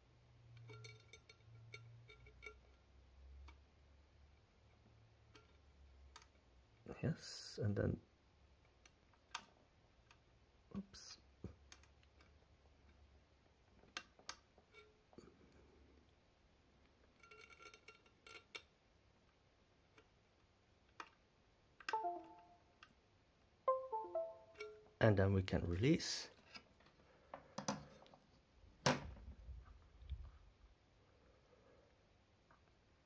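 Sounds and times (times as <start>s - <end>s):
computer device chime: 21.9s - 22.7s, 23.7s - 24.8s.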